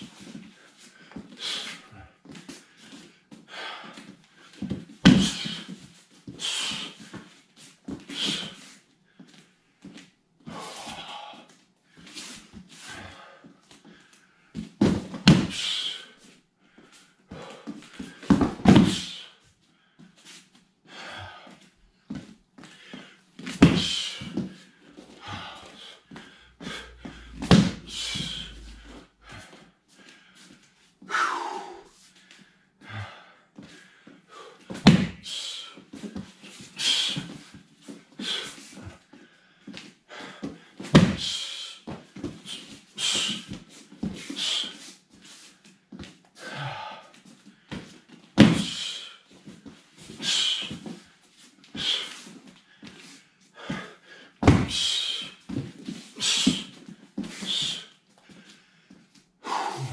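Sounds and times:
hard breathing: 0.3 - 14.7, 15.4 - 45.8, 46.4 - 59.9
body slapping onto foam mats: 4.7 - 5.7, 14.8 - 15.7, 18.2 - 19.2, 23.4 - 24.6, 26.6 - 28.5, 34.7 - 35.3, 40.8 - 41.4, 48.4 - 48.9, 54.4 - 54.9.

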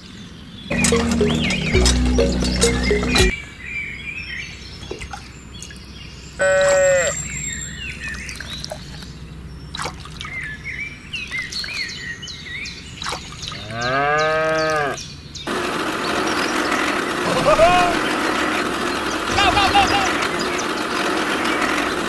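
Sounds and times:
cow mooing: 13.7 - 15.0.

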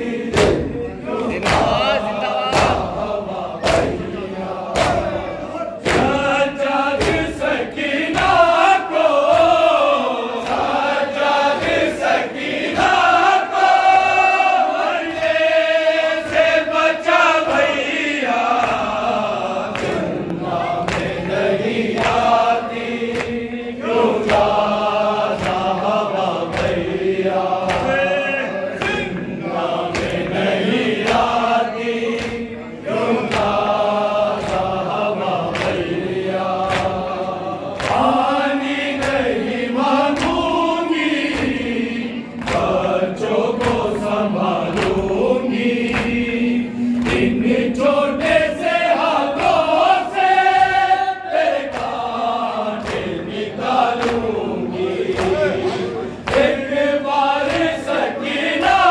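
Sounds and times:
men chanting in unison: 0.0 - 58.9
hands slapping chests: 0.3 - 3.0, 3.6 - 4.1, 4.7 - 5.2, 5.8 - 6.3, 18.4 - 28.0, 28.8 - 31.4, 32.1 - 32.5, 33.2 - 37.1, 37.7 - 39.4, 40.0 - 41.7, 42.4 - 42.9, 43.5 - 48.3, 51.6 - 58.9.

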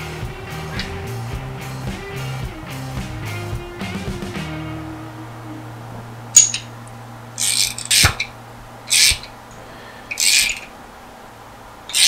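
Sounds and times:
socket ratchet clicking: 7.4 - 8.3, 8.9 - 9.3, 10.1 - 10.7.

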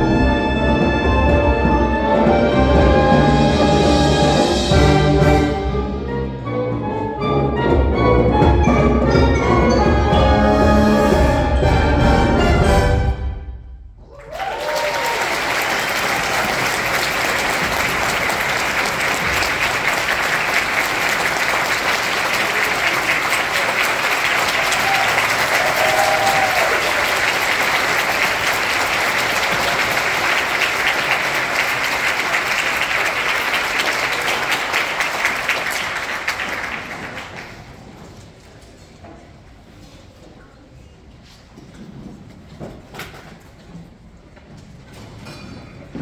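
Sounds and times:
high cheer: 14.0 - 36.7
audience applauding: 14.0 - 37.9.

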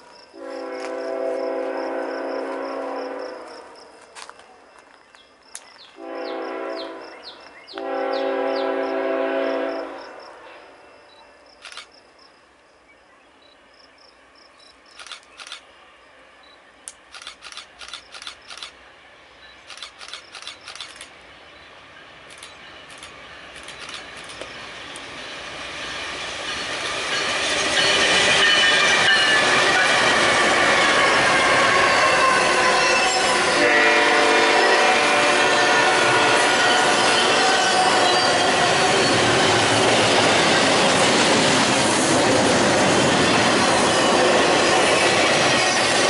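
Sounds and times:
train rumble: 0.0 - 12.6, 14.2 - 46.0
locomotive horn blasts: 0.4 - 3.7, 6.0 - 10.7, 28.2 - 39.0
sharp clicks: 11.6 - 12.0, 14.9 - 15.6, 16.8 - 18.8, 19.6 - 21.2, 22.3 - 25.1.

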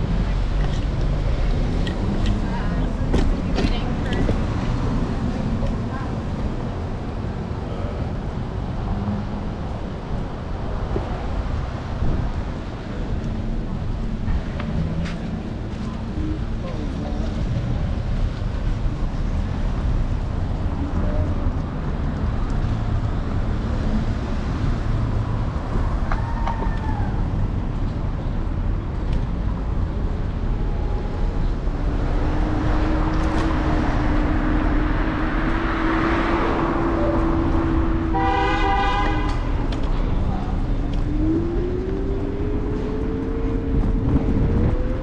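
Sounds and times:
street traffic: 0.0 - 45.0
wind rumbling over microphone: 0.0 - 45.0
pulsing horn: 36.8 - 39.6.

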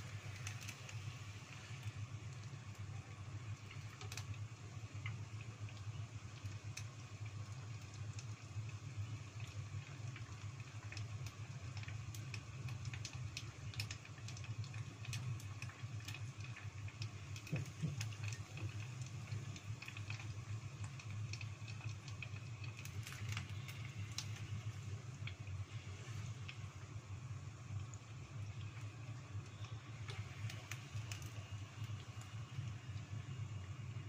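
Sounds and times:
oil crackling and popping: 0.0 - 34.0
steady low hum: 14.4 - 34.0.

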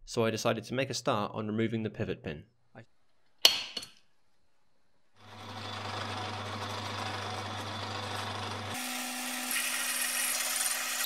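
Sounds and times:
drill cutting metal whine: 5.2 - 11.0
drill press motor hum: 5.2 - 11.0.

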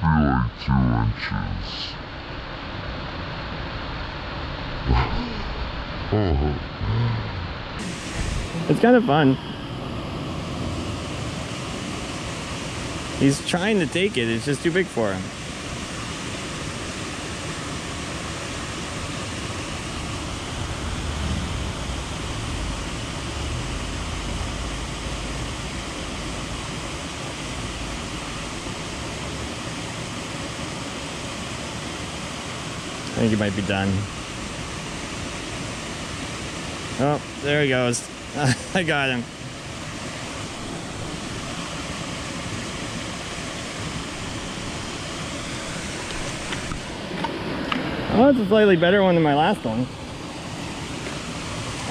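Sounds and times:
low rumble: 4.7 - 10.1, 19.9 - 26.8
small waterfall and stream rushing: 7.8 - 51.9.

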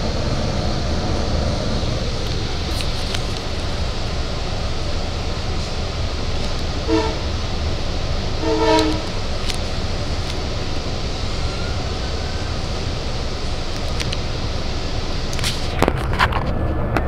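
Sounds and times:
train coach rumbling on track: 0.0 - 17.0
train horn blasts: 6.8 - 7.5, 8.3 - 9.3.

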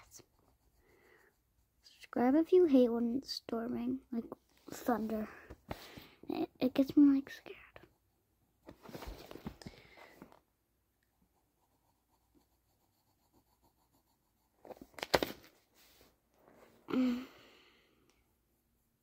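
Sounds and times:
pencil scratching on paper: 0.0 - 2.8, 11.1 - 14.9.

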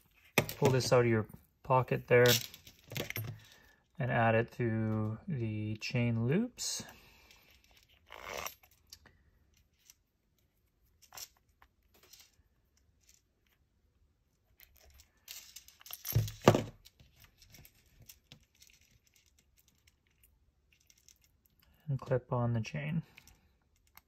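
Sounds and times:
metal ball chain clicks: 14.6 - 21.6.

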